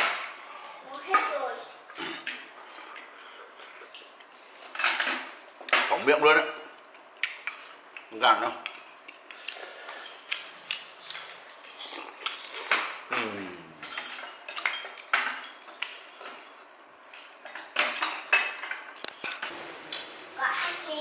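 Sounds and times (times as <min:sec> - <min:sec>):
utensils clinking against bowls: 0:13.8 - 0:15.8.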